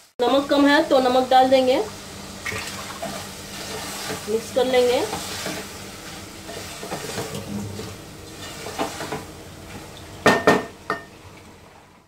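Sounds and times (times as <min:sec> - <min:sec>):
food sizzling gently: 0:00.0 - 0:12.0
wooden spoon scraping pot: 0:03.0 - 0:09.8
spoon knocking against pot: 0:10.2 - 0:11.1.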